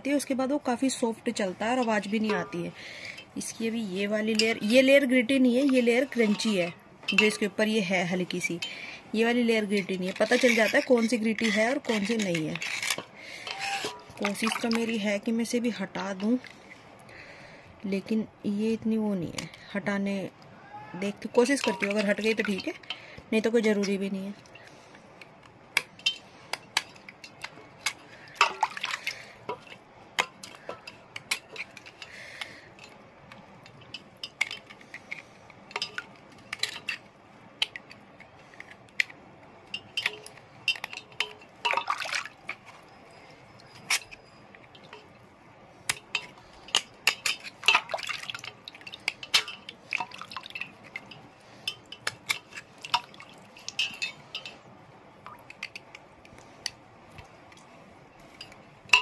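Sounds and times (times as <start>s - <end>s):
water dripping into steel bowl: 21.1s - 24.8s, 25.7s - 34.6s, 35.6s - 37.0s, 39.6s - 45.3s, 45.9s - 59.0s.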